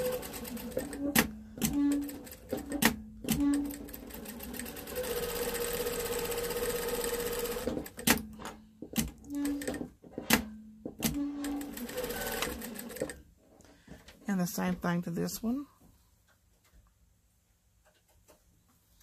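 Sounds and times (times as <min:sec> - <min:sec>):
sewing machine stitching: 0:00.0 - 0:13.2.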